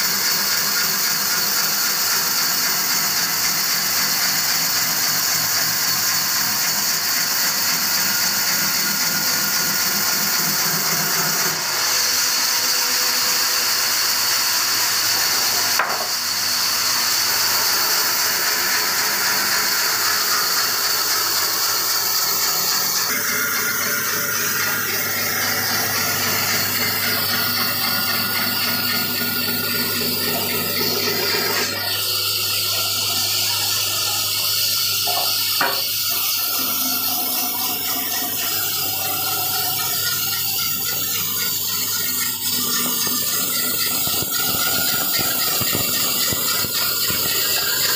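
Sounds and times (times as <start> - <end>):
band saw cutting wood: 0.0 - 47.9
machine hum: 17.0 - 47.9.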